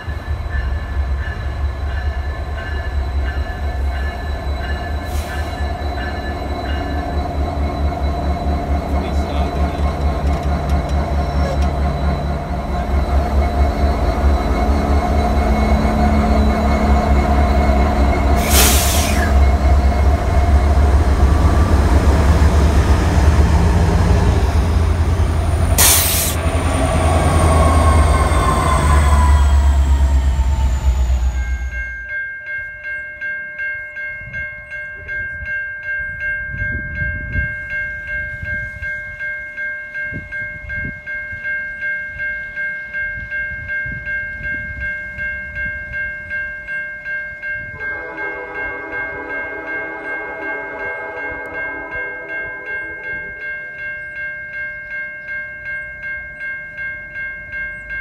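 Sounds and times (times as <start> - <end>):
diesel locomotive engine rumble: 0.0 - 32.1
train wheel noise: 0.0 - 32.1
train air horn chord: 47.8 - 52.8.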